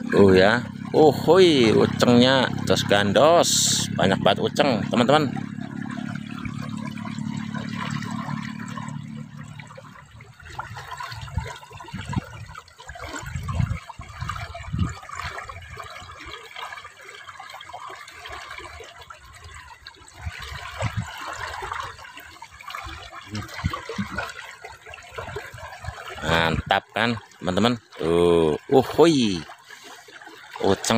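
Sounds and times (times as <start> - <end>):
low hum: 0.0 - 12.6
water trickling in a channel: 0.0 - 30.9.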